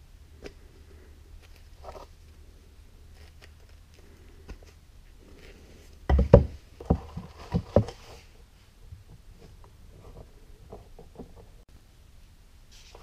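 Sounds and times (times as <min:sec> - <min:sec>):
wooden pieces knocking on wood: 0:06.1 - 0:08.0.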